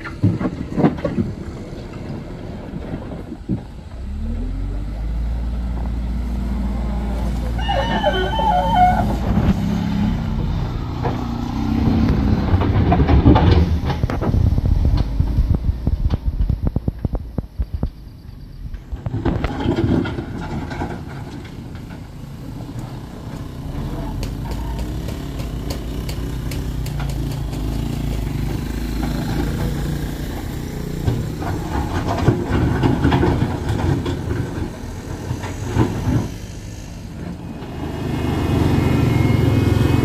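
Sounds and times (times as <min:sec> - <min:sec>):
wheel loader diesel engine: 0:00.0 - 0:40.0
motorcycle passing: 0:04.0 - 0:17.8, 0:22.9 - 0:40.0.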